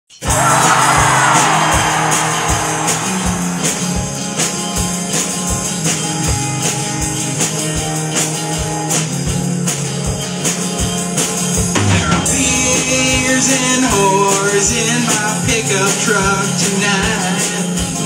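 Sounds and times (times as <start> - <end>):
distorted electric guitar strumming: 0.1 - 18.0
drum kit beat with cymbals: 0.1 - 18.0.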